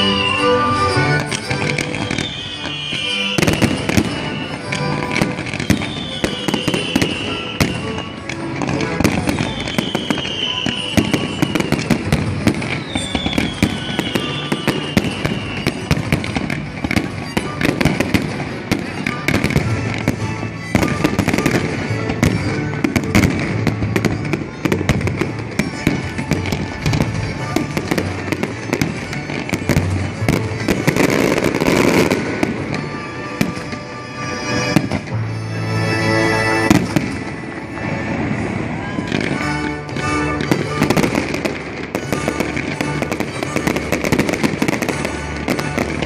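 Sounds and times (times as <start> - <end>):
falling firework whistles: 0.0 - 1.0, 1.8 - 8.2, 9.0 - 19.6
fireworks bangs and crackling: 0.0 - 46.0.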